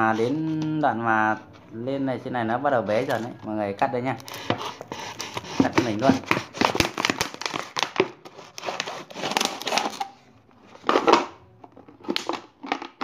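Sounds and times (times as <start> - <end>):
knife sawing plastic bottle: 4.2 - 10.1.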